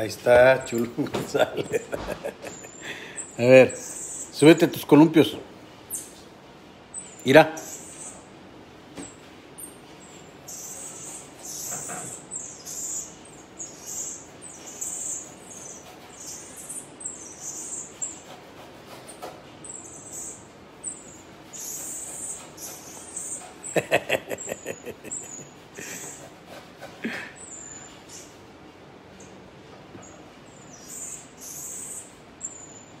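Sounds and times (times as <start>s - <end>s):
monkey chirping calls: 0.0s - 6.2s, 6.9s - 8.3s, 10.4s - 18.4s, 19.6s - 26.3s, 27.0s - 28.3s, 30.5s - 33.0s.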